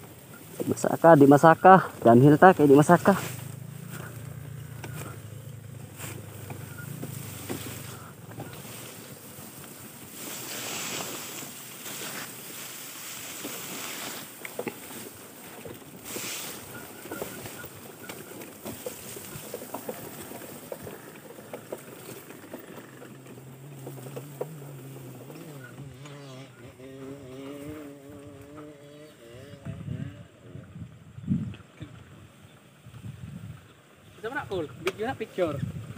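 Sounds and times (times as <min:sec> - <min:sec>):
tall grass swishing: 0:00.1 - 0:20.6
wind buffeting microphone: 0:29.5 - 0:33.8, 0:35.5 - 0:35.9.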